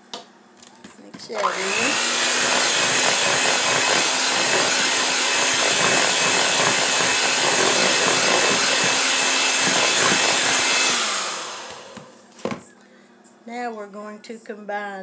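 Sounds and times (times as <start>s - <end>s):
electric hand mixer running: 1.3s - 12.2s.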